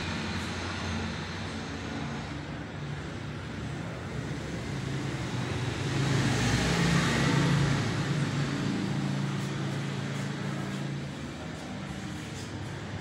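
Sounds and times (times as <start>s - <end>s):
road traffic hum: 0.0s - 13.0s
vehicle passing: 0.0s - 13.0s.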